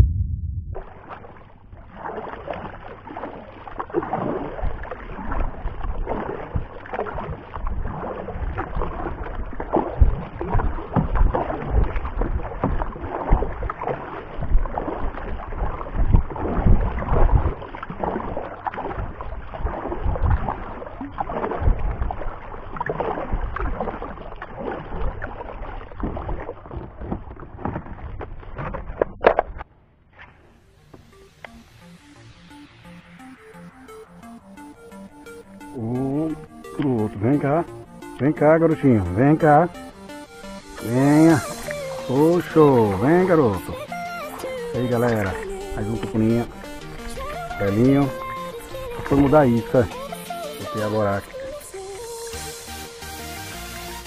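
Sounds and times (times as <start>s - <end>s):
water splashing against kayak hull: 0.0s - 54.0s.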